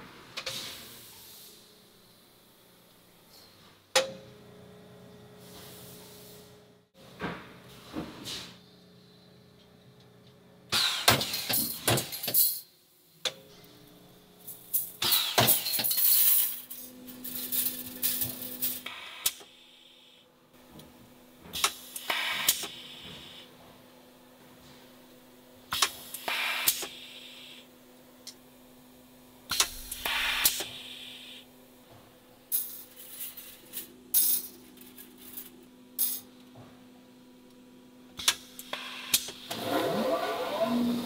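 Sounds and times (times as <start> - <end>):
faint machine hum: 0.0 - 41.0.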